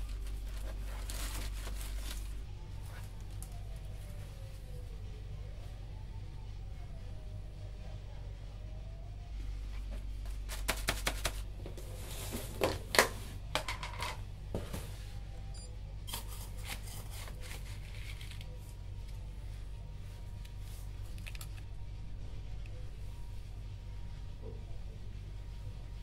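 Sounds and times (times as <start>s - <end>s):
scoop rustling in plastic liner: 0.0s - 3.4s
low steady hum: 0.0s - 26.0s.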